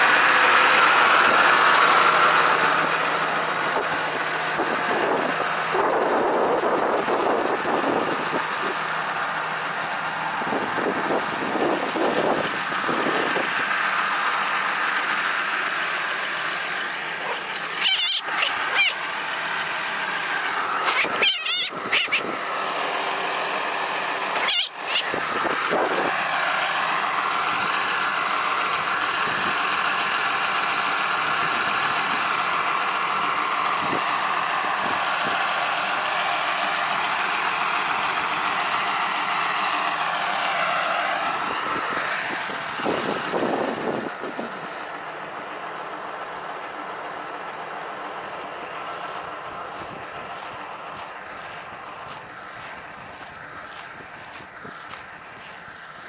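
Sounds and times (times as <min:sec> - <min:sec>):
tractor engine running: 0:00.0 - 0:56.0
shrill squeals: 0:17.7 - 0:19.0, 0:20.9 - 0:22.2, 0:24.4 - 0:25.1.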